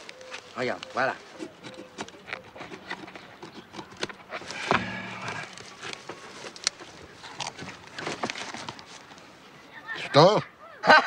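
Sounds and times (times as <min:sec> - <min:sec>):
newspaper rustling and crackling: 0:00.0 - 0:02.8, 0:05.6 - 0:09.3.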